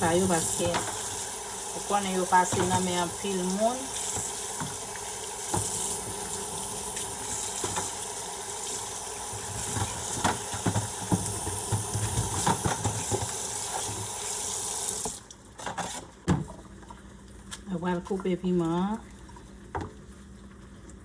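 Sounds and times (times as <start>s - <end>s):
tap running into a steel sink: 7.4s - 8.0s.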